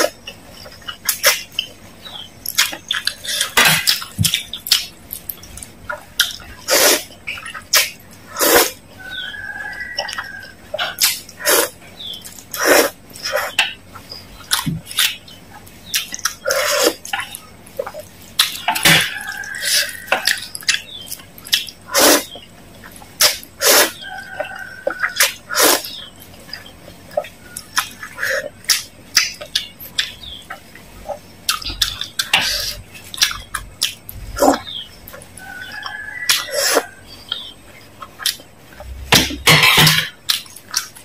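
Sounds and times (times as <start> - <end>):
wet chewing: 0.0 - 41.0
slurping noodles: 6.6 - 7.1, 8.3 - 8.8, 11.4 - 11.8, 12.5 - 13.5, 16.4 - 17.1, 21.9 - 22.3, 23.2 - 24.0, 25.2 - 26.0.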